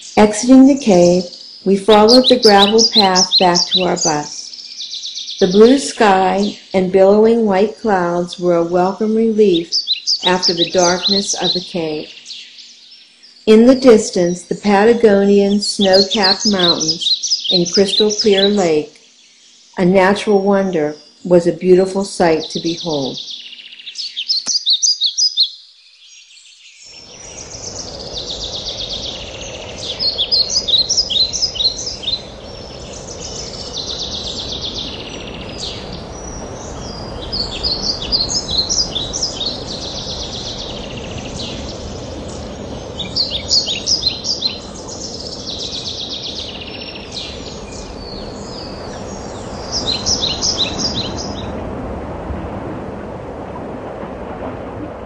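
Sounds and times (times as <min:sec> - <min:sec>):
songbirds chirping: 0:00.0 - 0:55.0
steady rushing noise: 0:27.0 - 0:55.0.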